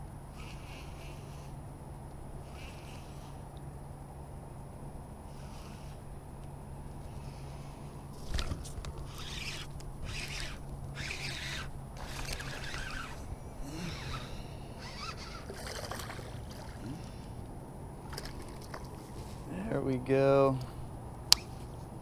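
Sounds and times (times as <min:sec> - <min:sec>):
fishing reel winding: 0:09.0 - 0:13.2, 0:13.9 - 0:16.2.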